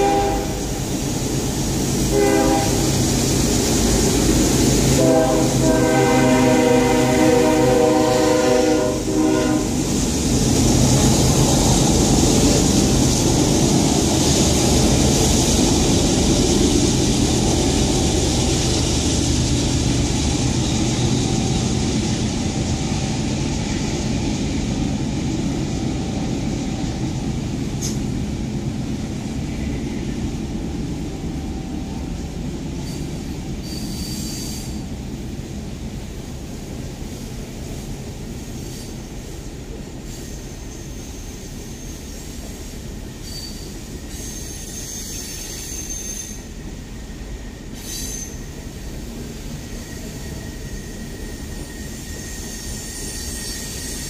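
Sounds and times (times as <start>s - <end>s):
train wheels rumbling on rails: 0.0s - 54.0s
high-pitched wheel squeal: 33.6s - 34.8s, 43.2s - 46.5s, 47.8s - 48.5s, 49.8s - 54.0s.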